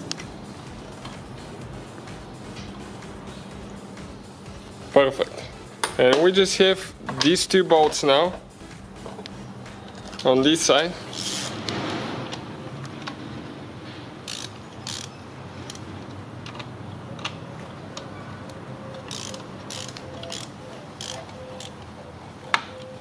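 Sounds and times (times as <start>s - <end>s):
hand ratchet clicking: 11.1s - 11.5s, 14.2s - 16.6s, 18.9s - 21.8s.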